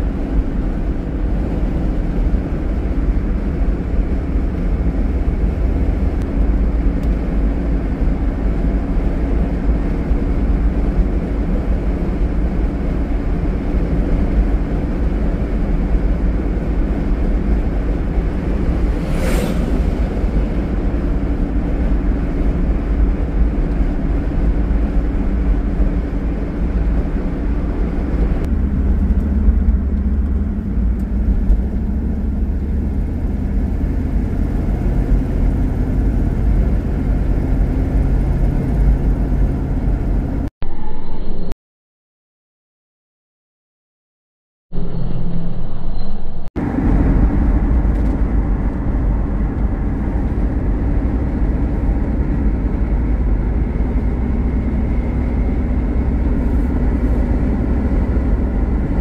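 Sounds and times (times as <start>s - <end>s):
car engine and road rumble: 0.0s - 41.5s, 44.8s - 59.0s
brief whoosh: 18.2s - 21.9s.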